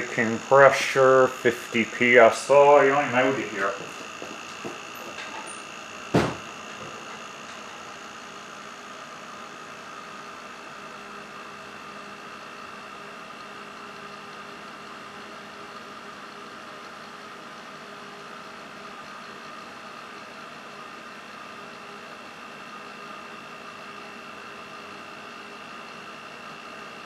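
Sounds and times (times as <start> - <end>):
compressor humming: 0.0 - 12.2
sharp knock: 6.1 - 6.4.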